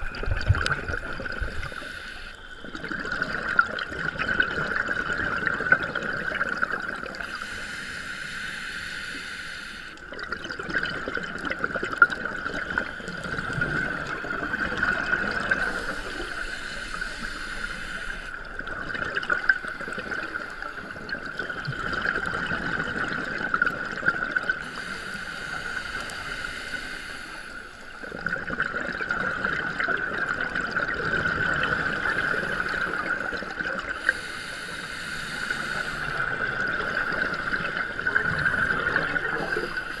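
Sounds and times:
gurgle of exhaled bubbles: 0.0 - 1.8, 2.6 - 7.3, 10.1 - 17.0, 18.3 - 24.6, 28.0 - 34.2, 35.6 - 40.0
regulator hissing inhale: 0.9 - 2.8, 7.1 - 10.1, 15.0 - 18.5, 19.4 - 21.7, 24.6 - 28.1, 31.8 - 40.0.

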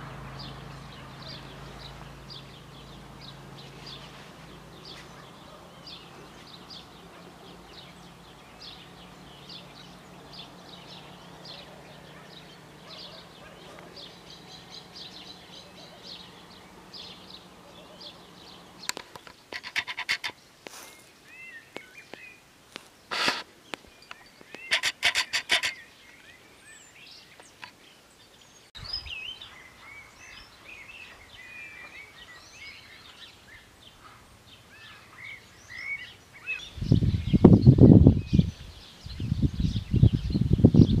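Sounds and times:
small birds chirping: 0.0 - 41.0
dry rapid rattling bursts: 19.0 - 20.4, 23.1 - 23.4, 24.6 - 25.8.

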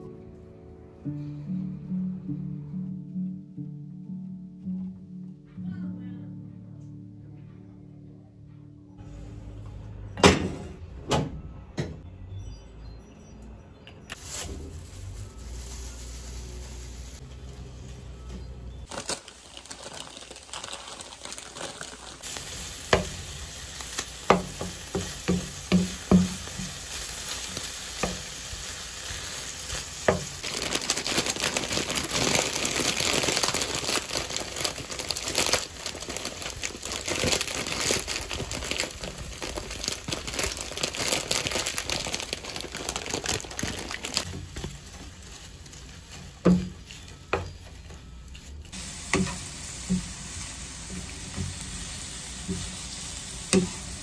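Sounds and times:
food sizzling in a pan: 14.2 - 17.2, 18.8 - 36.9, 48.7 - 54.0.

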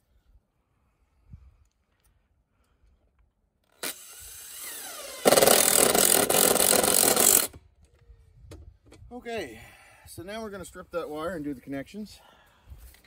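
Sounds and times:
impact driver driving a screw: 3.7 - 7.6.

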